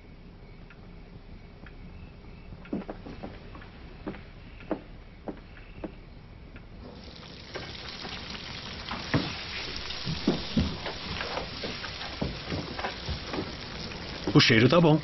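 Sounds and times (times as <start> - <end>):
food sizzling in a frying pan: 6.8 - 15.0.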